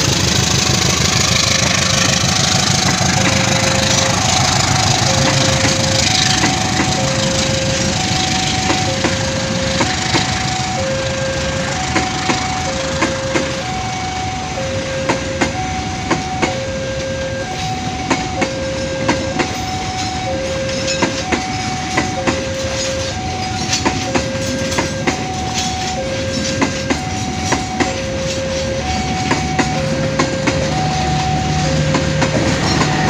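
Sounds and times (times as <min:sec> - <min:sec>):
train wheels clicking over rail joints: 0:00.0 - 0:13.9, 0:14.7 - 0:16.6, 0:17.5 - 0:33.0
electronic two-tone alarm: 0:01.4 - 0:33.0.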